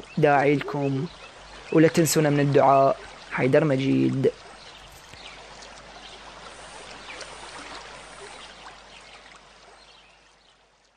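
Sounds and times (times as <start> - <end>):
faint hiss: 0.0 - 10.5
small crackles: 4.4 - 8.4.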